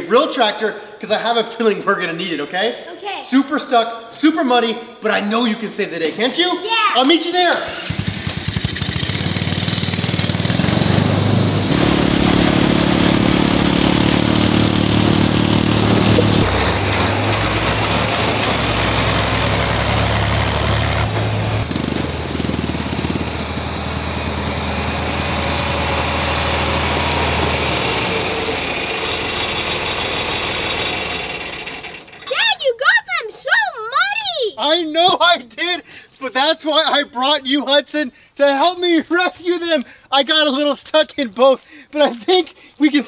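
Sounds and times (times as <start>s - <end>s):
toy car engine: 7.6s - 19.6s, 28.9s - 34.1s
tractor engine running: 7.7s - 32.6s.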